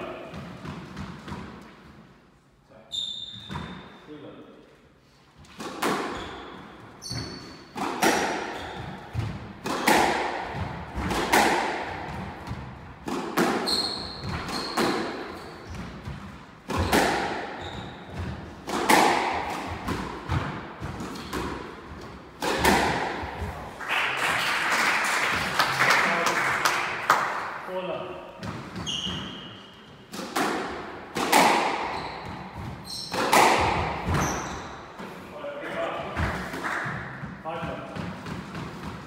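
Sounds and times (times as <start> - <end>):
court shoes squeaking: 2.8 - 4.1, 5.4 - 10.0, 12.1 - 23.6, 28.4 - 30.5, 31.2 - 35.2
squash ball hits echoing: 5.4 - 23.8, 28.4 - 35.2, 35.9 - 39.0.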